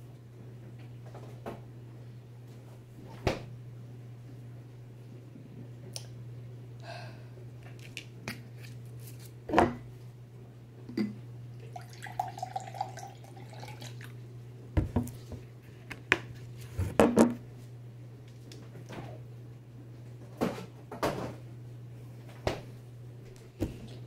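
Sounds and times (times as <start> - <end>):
steady low hum: 0.0 - 24.0
juice pouring into a glass: 11.6 - 14.2.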